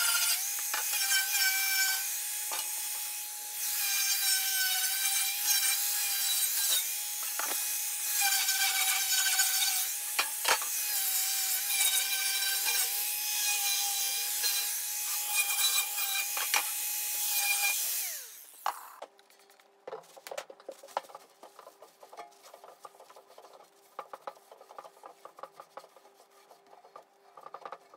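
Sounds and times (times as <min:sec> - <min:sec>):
angle grinder sanding steel: 0:00.0 - 0:18.7.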